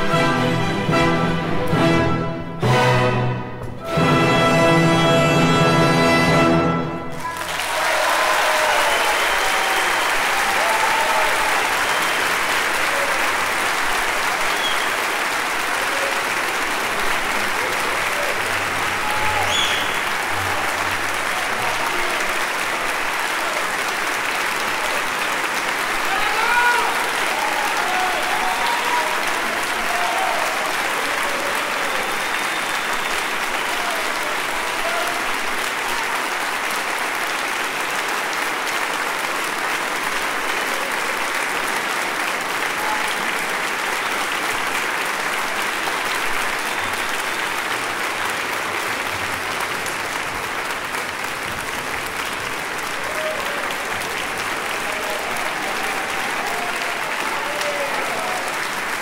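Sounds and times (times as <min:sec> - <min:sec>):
audience applauding: 0:06.7 - 0:59.0.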